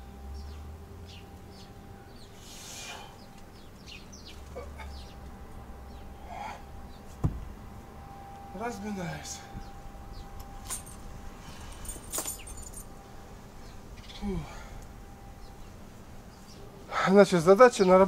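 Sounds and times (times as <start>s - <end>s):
birds chirping: 0.0s - 18.0s
kettlebell thud on grass: 7.2s - 7.5s.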